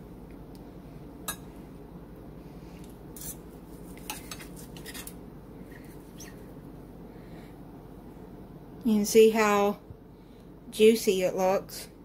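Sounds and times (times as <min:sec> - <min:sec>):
knife scraping a plate: 0:03.2 - 0:05.2.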